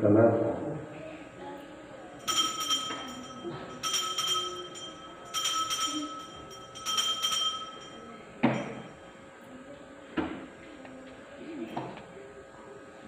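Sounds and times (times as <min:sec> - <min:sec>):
altar bell ringing: 0:02.2 - 0:09.4.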